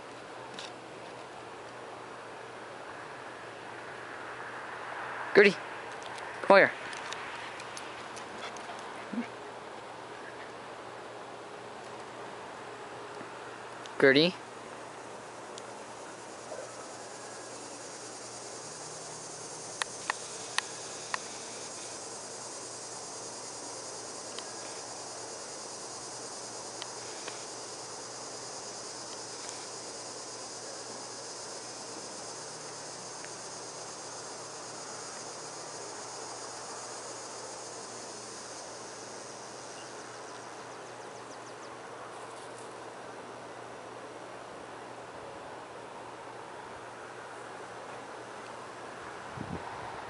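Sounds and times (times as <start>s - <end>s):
crickets chirring: 2.1s - 11.5s, 14.4s - 43.9s.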